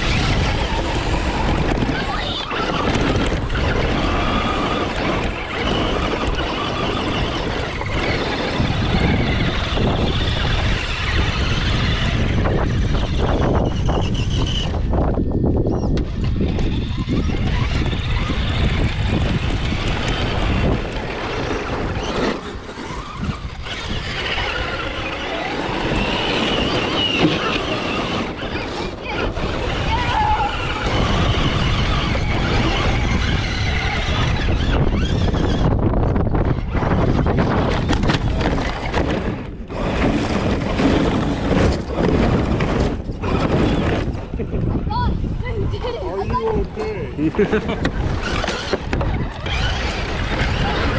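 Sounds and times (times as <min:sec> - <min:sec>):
electric motor and gears whining: 0:00.0 - 0:50.9
tyres rumbling over dirt: 0:00.0 - 0:50.9
wind buffeting microphone: 0:00.0 - 0:50.9.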